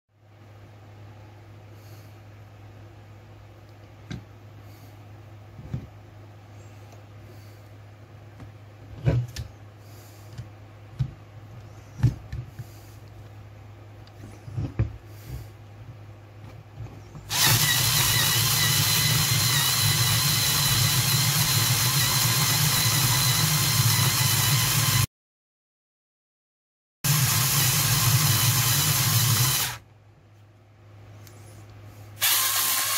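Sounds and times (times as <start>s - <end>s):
coffee grinder grinding beans: 17.3s - 25.0s, 32.2s - 32.9s
electric screwdriver motor whirring: 17.3s - 25.0s, 27.1s - 29.8s, 32.2s - 32.9s.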